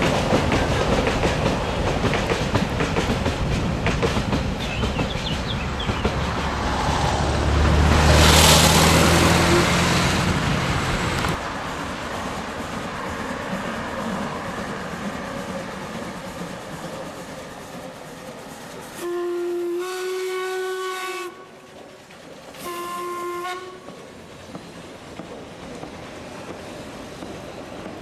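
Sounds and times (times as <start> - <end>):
train working: 0.0 - 28.0
steam locomotive whistle: 9.2 - 10.0, 18.9 - 21.7, 22.6 - 24.0.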